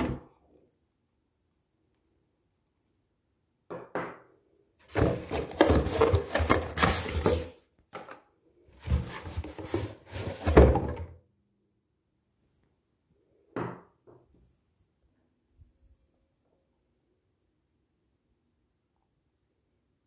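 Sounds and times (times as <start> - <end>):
cardboard box rustling and knocking: 4.9 - 7.5.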